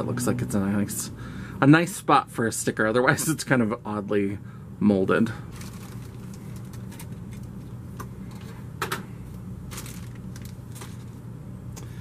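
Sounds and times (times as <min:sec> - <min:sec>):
steady low hum: 0:00.0 - 0:12.0
plastic bags rustling: 0:05.5 - 0:07.6, 0:09.7 - 0:11.2.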